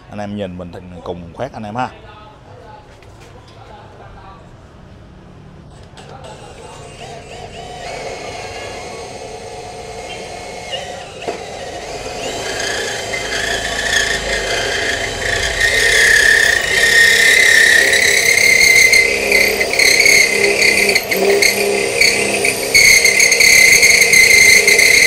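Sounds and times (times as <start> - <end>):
cutter squealing on steel: 6.2 - 25.0
drill motor running under load: 6.2 - 25.0.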